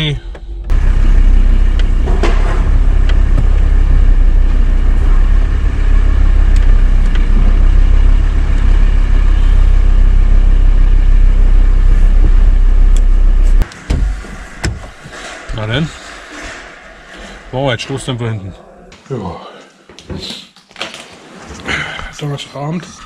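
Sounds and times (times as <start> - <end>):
car engine and road noise: 0.0 - 18.3.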